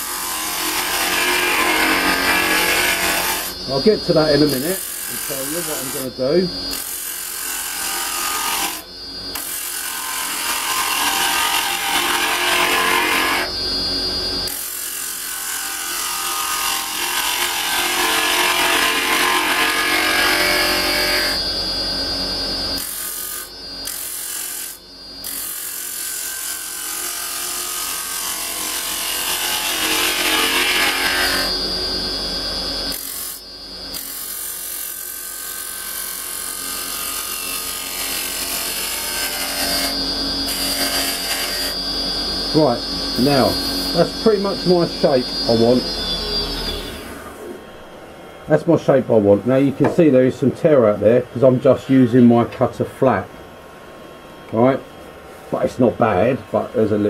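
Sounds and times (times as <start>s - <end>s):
lathe tool scraping wood: 0.0s - 13.6s, 14.4s - 21.4s, 22.8s - 31.6s, 34.0s - 41.8s.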